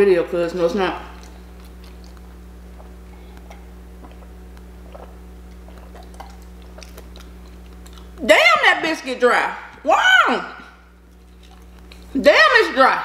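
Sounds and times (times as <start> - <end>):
steady low hum: 0.0 - 13.0
person drinking and swallowing: 1.4 - 8.1.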